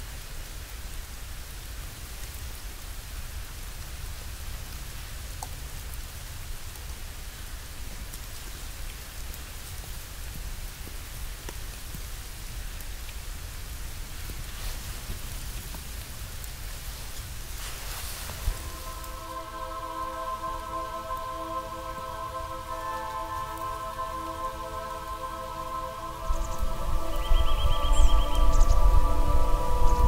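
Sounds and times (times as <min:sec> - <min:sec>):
wind rumbling on microphone: 0:14.1 - 0:19.4, 0:26.1 - 0:30.0.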